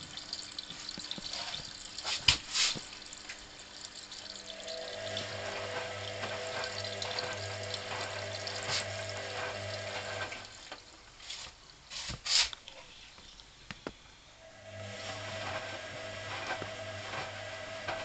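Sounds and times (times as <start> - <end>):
water sloshing and splashing: 0.0 - 12.2
washing machine motor hum: 2.8 - 10.9, 14.4 - 18.0.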